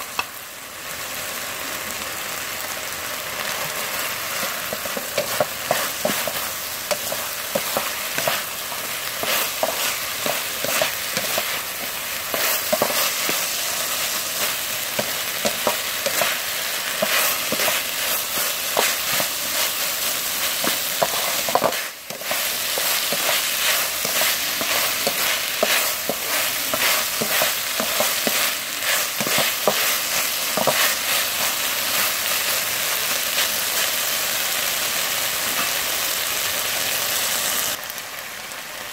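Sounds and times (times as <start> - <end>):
food sizzling in a wok: 0.0 - 38.9
wooden spatula scraping a pan: 4.4 - 32.2.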